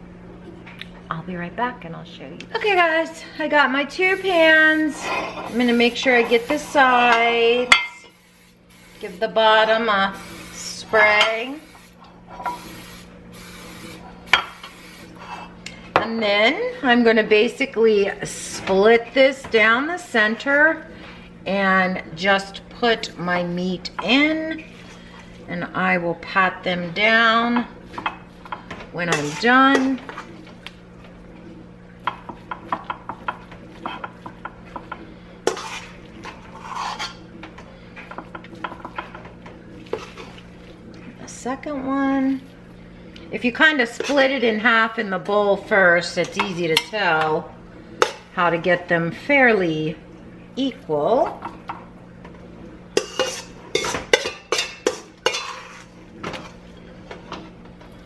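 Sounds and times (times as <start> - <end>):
spoon scraping a bowl: 4.9 - 6.6, 29.1 - 30.3, 35.5 - 37.2, 53.0 - 56.0.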